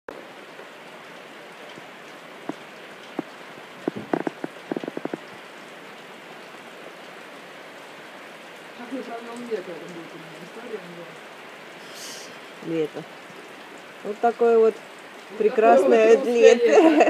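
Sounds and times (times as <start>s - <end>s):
steady rain falling: 0.1s - 17.0s.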